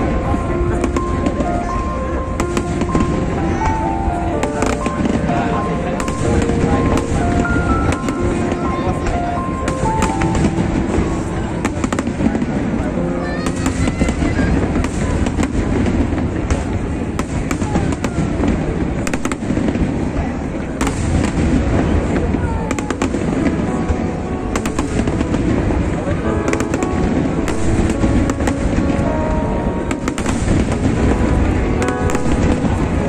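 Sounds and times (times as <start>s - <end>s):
fireworks bangs and crackles: 0.0s - 33.0s.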